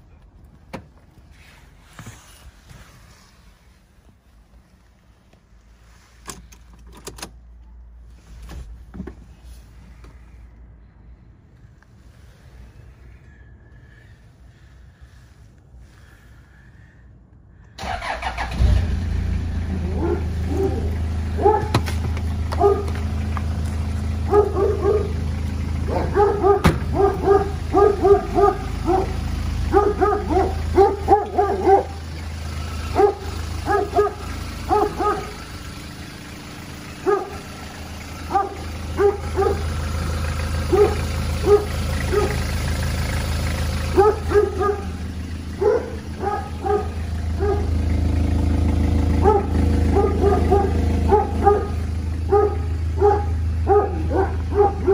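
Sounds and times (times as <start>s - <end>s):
diesel engine idling: 9.7s - 54.9s
dog barking: 19.8s - 23.0s, 24.2s - 25.2s, 25.8s - 32.0s, 32.9s - 35.4s, 37.0s - 37.4s, 38.3s - 39.7s, 40.6s - 42.5s, 43.9s - 47.8s, 49.1s - 54.9s.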